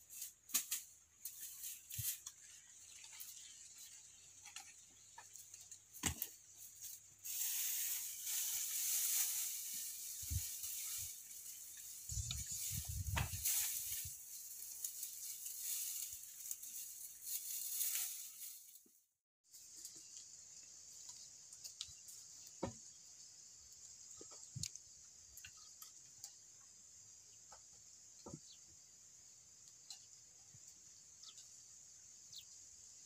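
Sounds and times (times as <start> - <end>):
dry grass rustling: 0.0 - 22.6.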